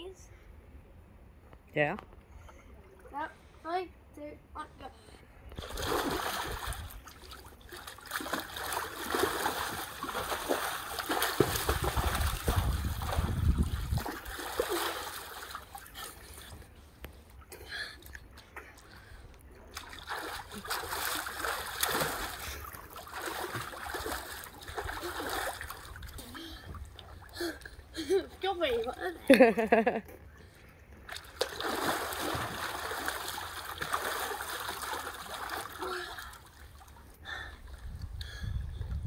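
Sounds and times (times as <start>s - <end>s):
pool water splashing: 5.6s - 30.0s, 31.0s - 37.5s.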